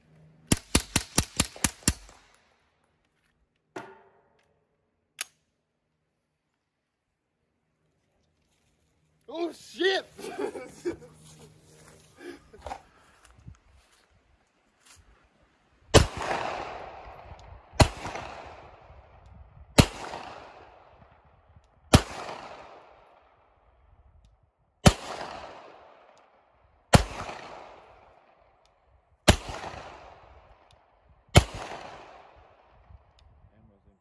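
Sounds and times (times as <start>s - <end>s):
pistol shots with echo: 15.9s - 19.0s, 19.8s - 21.0s, 21.9s - 23.2s, 24.8s - 26.1s, 26.9s - 28.1s, 29.3s - 30.6s, 31.3s - 32.6s.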